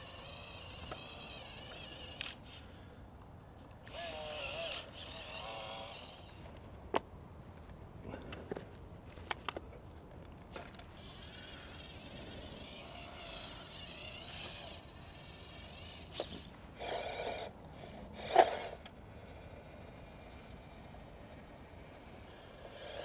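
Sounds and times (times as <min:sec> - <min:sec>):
toy truck motor whining: 0:00.0 - 0:02.8, 0:03.8 - 0:06.5, 0:11.0 - 0:23.0.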